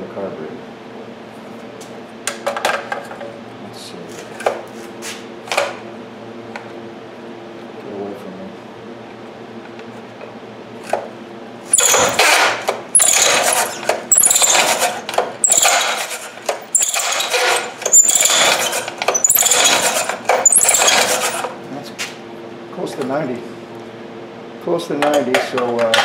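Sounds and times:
recoil starter rope pulls: 0:11.7 - 0:21.5.

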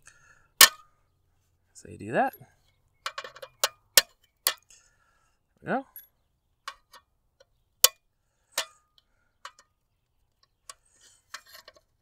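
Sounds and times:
metallic clicks on metal enclosure: 0:03.0 - 0:04.8, 0:06.0 - 0:09.7.

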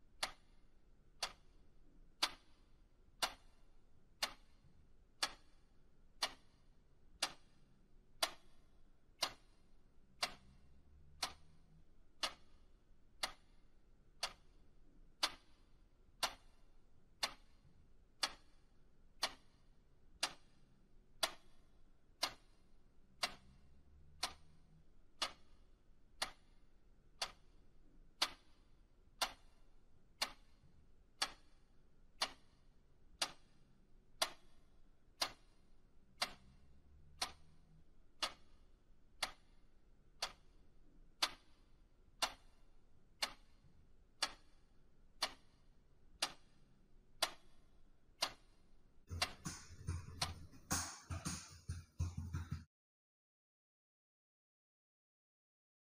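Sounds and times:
clock ticking: 0:00.0 - 0:20.6, 0:21.2 - 0:46.6, 0:47.2 - 0:52.7
fuller louder sound: 0:49.1 - 0:52.6.

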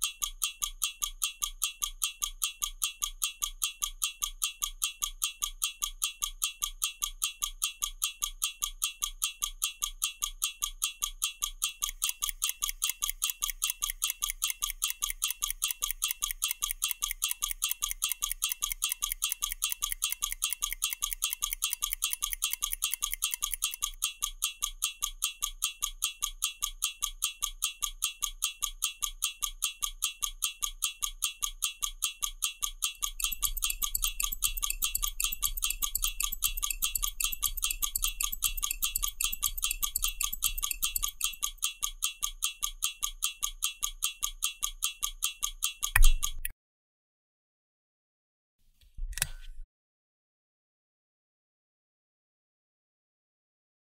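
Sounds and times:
stopwatch ticking: 0:00.0 - 0:46.5.

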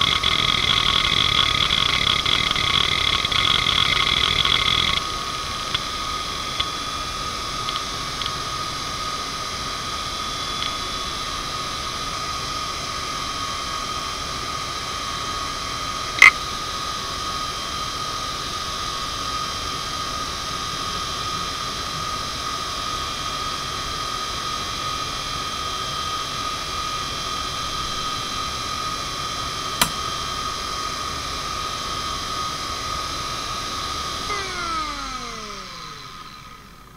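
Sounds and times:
sharp hard drive clicks: 0:00.0 - 0:05.0, 0:29.8 - 0:30.1
hard drive whine and hiss: 0:00.0 - 0:23.1, 0:24.0 - 0:36.9.

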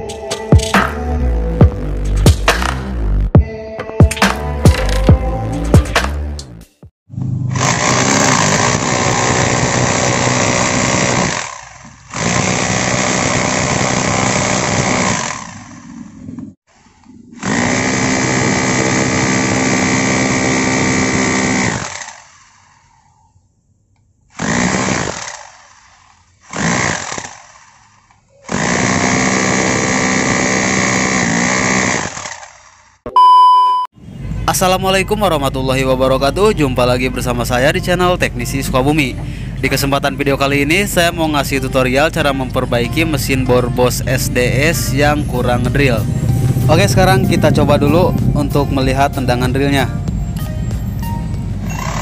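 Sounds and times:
rotary hammer drilling into concrete: 0:07.4 - 0:23.0, 0:24.3 - 0:33.0.

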